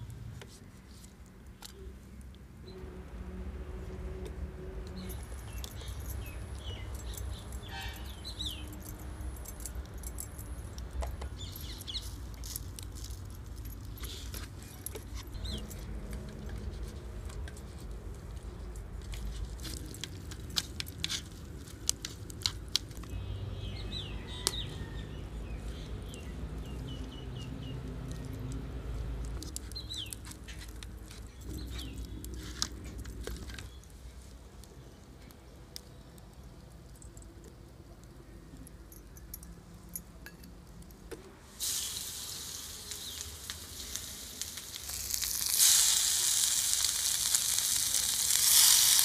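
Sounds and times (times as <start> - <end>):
birds chirping: 4.9 - 10.4, 29.6 - 32.4.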